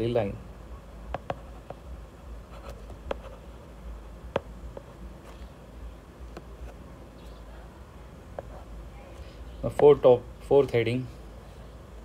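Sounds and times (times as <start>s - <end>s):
faint low hum: 0.0s - 12.0s
stylus tapping on tablet screen: 1.1s - 1.9s, 4.3s - 4.9s.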